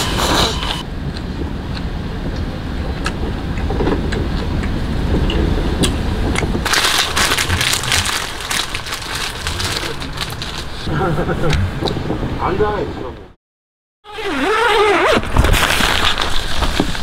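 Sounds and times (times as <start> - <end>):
low rumble: 0.2 - 13.4
food sizzling and crackling: 6.6 - 10.8.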